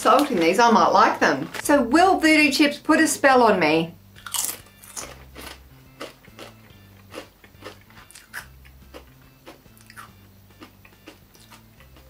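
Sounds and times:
potato chip crunching: 4.2 - 11.6.

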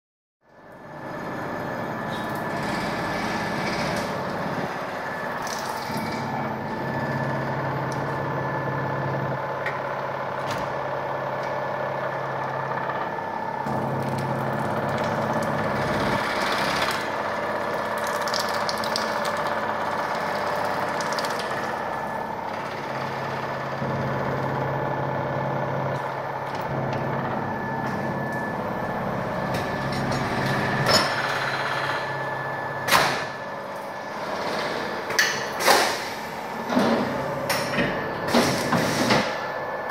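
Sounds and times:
low motor hum: 0.4 - 39.9.

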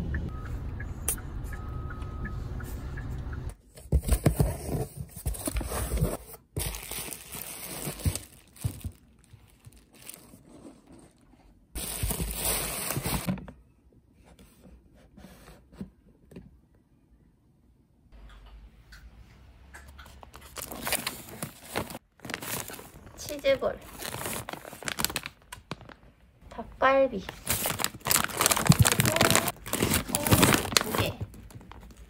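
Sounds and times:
packaging crinkling and rustling: 3.9 - 11.2, 11.8 - 13.3, 20.2 - 26.2, 27.2 - 32.0.

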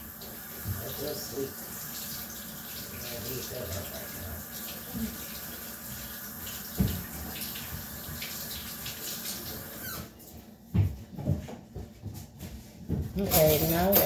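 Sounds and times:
kitchen tap running: 0.0 - 10.2.

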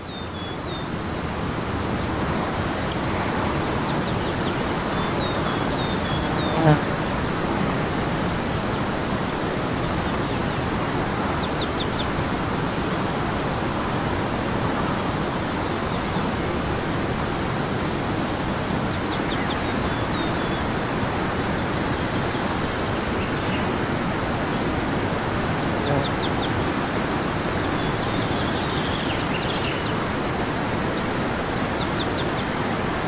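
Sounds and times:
high thin insect trill: 0.0 - 33.0
small birds chirping: 25.8 - 26.6.

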